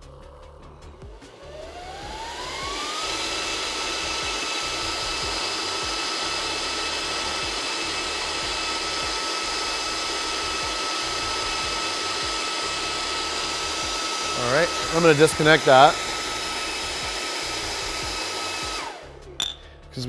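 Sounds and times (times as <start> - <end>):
motor whine: 0.8 - 19.6
fan whoosh: 1.2 - 6.2.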